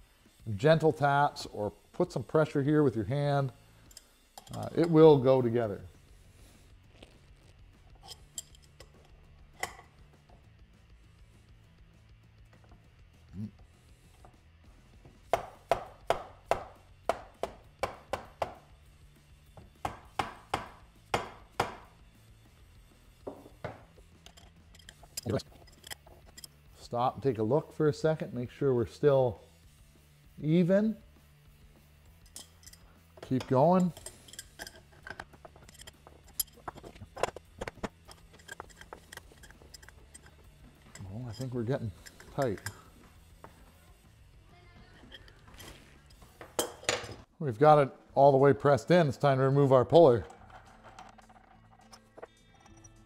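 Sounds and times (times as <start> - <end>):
wrench metallic clicks: 24.2 - 26.5, 33.4 - 42.9.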